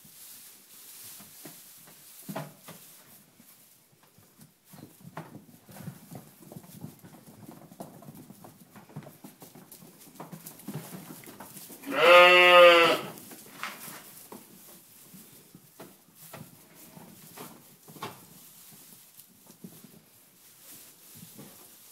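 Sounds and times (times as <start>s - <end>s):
hooves rustling on straw: 0.0s - 21.9s
sheep bleating: 11.8s - 13.2s.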